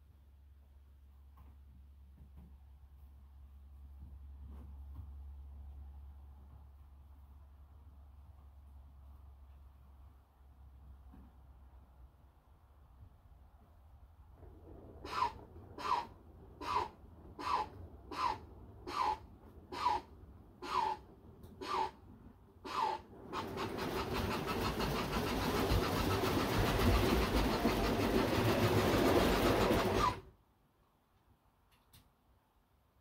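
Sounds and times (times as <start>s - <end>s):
train rushing with fast flutter: 14.3s - 30.4s
model steam locomotive chuffing: 14.6s - 21.0s, 21.6s - 21.9s, 22.7s - 30.3s.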